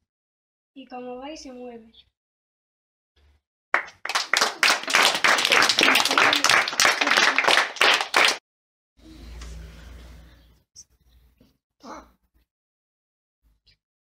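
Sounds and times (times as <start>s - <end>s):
children clapping: 3.8s - 8.4s.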